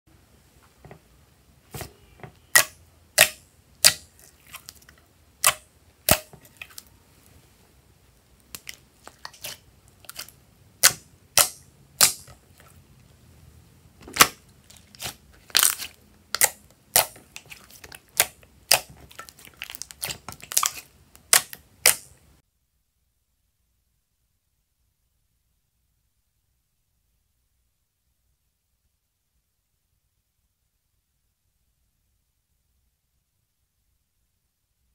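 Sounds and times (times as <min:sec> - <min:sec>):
slime popping and clicking: 0:15.6 - 0:17.5, 0:18.1 - 0:22.1.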